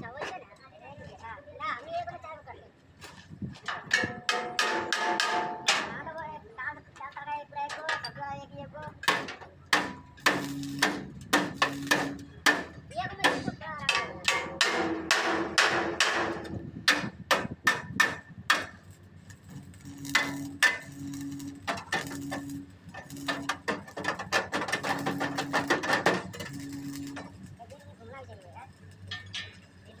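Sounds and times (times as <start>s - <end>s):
hammer striking sheet metal: 3.8s - 6.1s, 9.0s - 18.8s, 19.9s - 27.3s
low hum: 18.8s - 24.0s, 24.7s - 27.8s.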